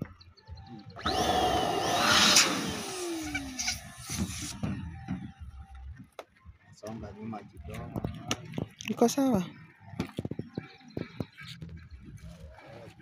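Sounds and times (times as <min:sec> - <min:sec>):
electric pump rushing air: 0:01.0 - 0:04.6.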